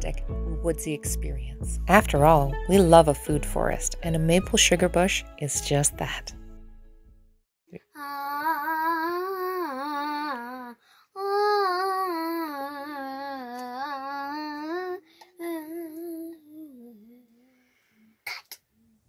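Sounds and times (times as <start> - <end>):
child singing: 8.0 - 17.4.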